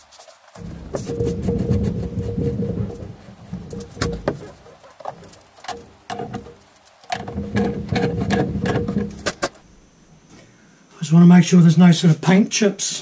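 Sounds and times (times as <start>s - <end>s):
low droning: 0.6s - 9.5s.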